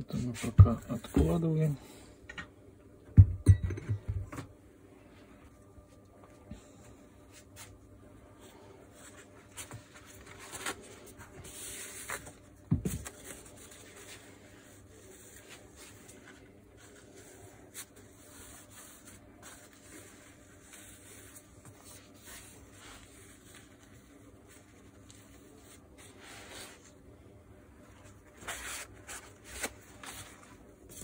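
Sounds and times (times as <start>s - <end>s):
paper towel rustling and rubbing: 8.4s - 27.0s, 27.7s - 31.0s.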